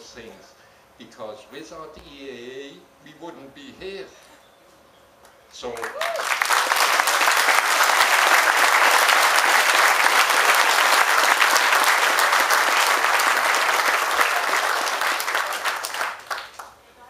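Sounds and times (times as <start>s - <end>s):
audience applauding: 5.7s - 16.8s.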